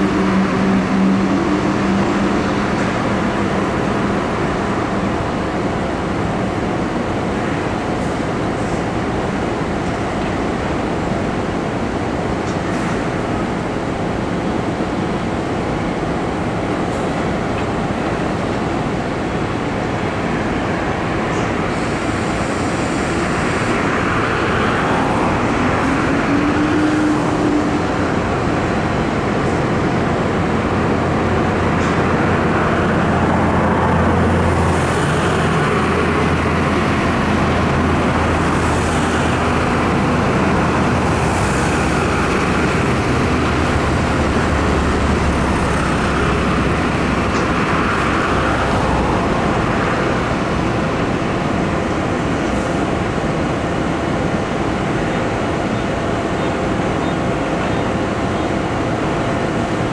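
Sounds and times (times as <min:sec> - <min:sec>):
low engine drone: 0:00.0 - 0:59.9
vehicles passing: 0:17.7 - 0:59.9.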